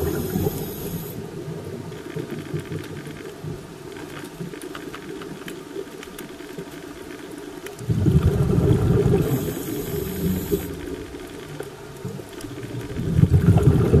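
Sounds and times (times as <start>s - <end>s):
air bubbles gurgling underwater: 0.0s - 2.3s, 7.8s - 11.6s, 12.4s - 14.0s.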